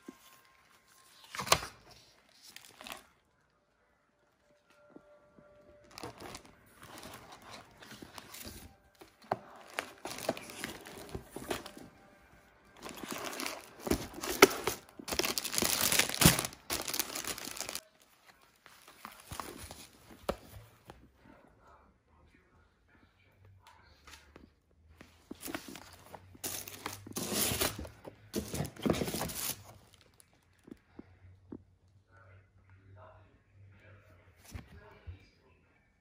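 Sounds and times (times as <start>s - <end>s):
plastic packaging crinkling: 5.8s - 11.9s, 12.8s - 19.9s.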